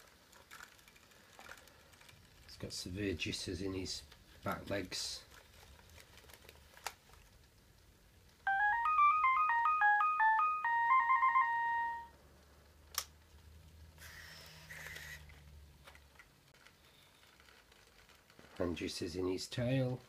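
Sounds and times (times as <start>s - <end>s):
robot beeping melody: 8.5s - 12.1s.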